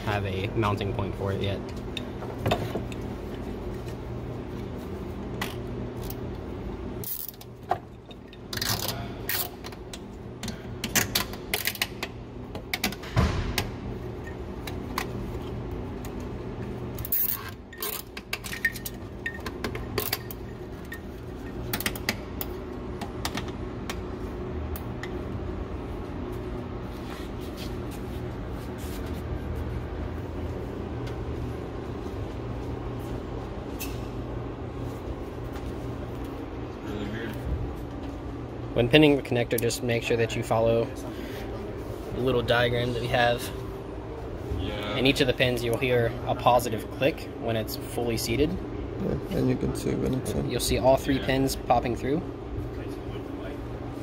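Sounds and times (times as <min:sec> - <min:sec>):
steady background hum: 0:00.0 - 0:54.0
tools and parts clicking and scraping: 0:07.0 - 0:12.1, 0:17.0 - 0:22.2.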